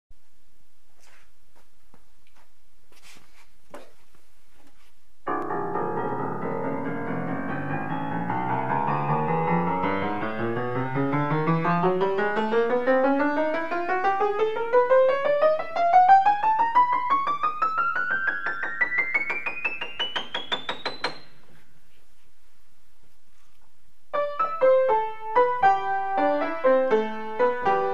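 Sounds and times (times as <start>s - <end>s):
piano notes climbing: 5.2s - 21.6s, 24.1s - 27.9s.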